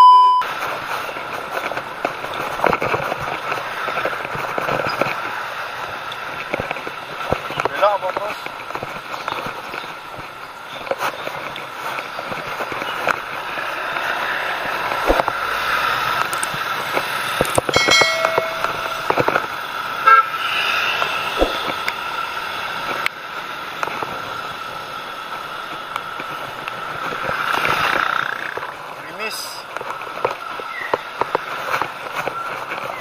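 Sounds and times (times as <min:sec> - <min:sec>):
road traffic noise: 0:00.0 - 0:33.0
vehicle horn toot: 0:20.0 - 0:20.5.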